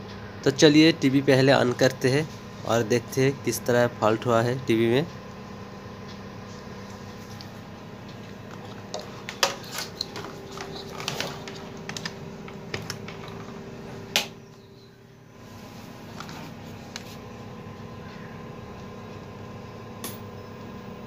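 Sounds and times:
low steady hum: 0.0s - 21.0s
small handling clicks and knocks: 8.5s - 13.6s.

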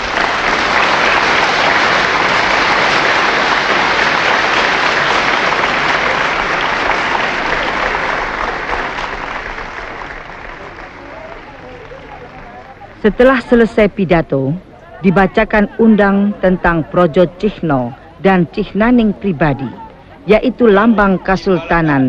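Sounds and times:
audience applauding: 0.0s - 13.4s.

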